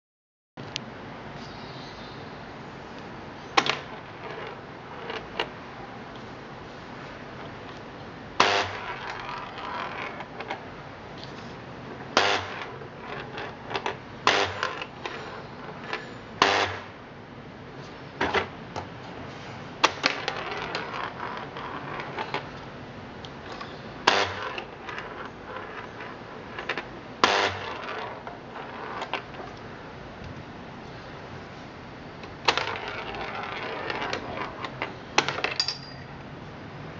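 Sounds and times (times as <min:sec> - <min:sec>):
small ball rattling over ridges: 0:19.8 - 0:22.7, 0:24.2 - 0:29.5, 0:32.2 - 0:36.0.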